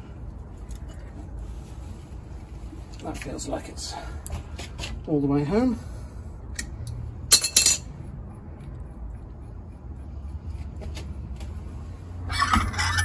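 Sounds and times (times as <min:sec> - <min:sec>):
steady low hum: 0:00.0 - 0:13.0
spanner clinking on metal: 0:06.6 - 0:08.0.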